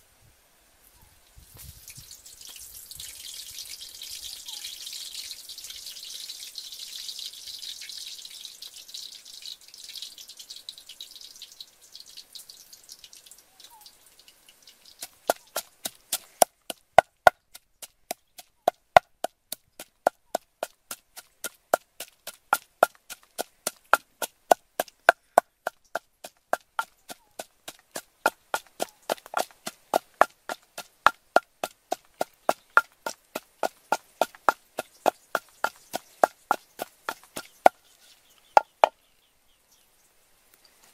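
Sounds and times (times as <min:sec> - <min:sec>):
soft hiss: 0:00.0 - 0:17.0, 0:20.8 - 0:40.9
wooden pestle pounding in clay mortar: 0:15.0 - 0:37.8.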